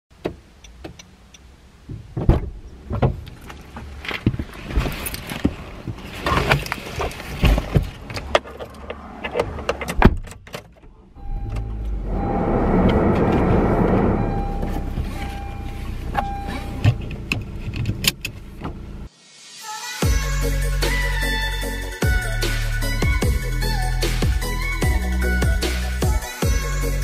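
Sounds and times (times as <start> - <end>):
handling clicks and knocks in car: 0.1 - 11.0, 16.0 - 18.9
car engine and fan running: 11.2 - 19.1.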